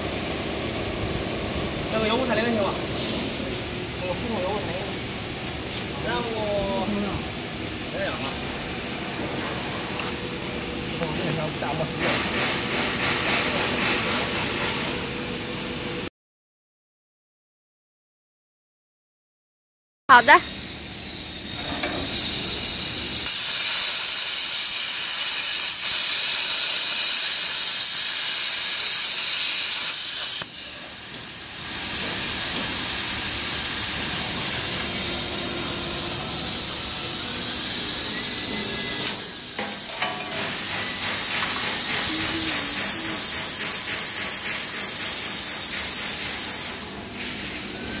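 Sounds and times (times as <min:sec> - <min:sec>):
plasma torch hissing: 0:01.7 - 0:07.3, 0:22.0 - 0:48.0.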